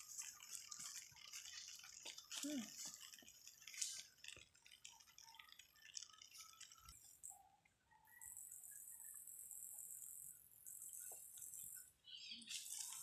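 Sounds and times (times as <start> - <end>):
soft ticks and chirps: 0.0 - 13.0.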